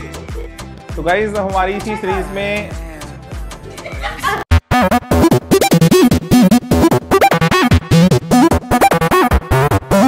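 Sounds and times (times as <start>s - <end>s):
chopped pitch-bending music: 4.5s - 10.0s.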